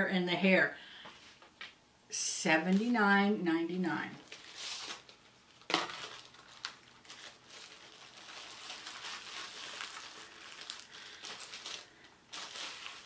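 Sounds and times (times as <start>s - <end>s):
packaging rustling and crinkling: 4.2s - 13.0s.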